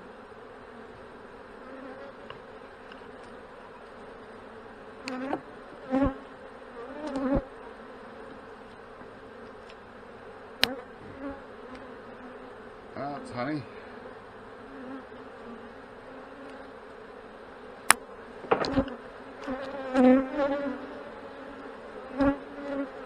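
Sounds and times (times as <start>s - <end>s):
bees humming: 0.0s - 23.0s
hive tool knocking and scraping: 18.4s - 19.8s.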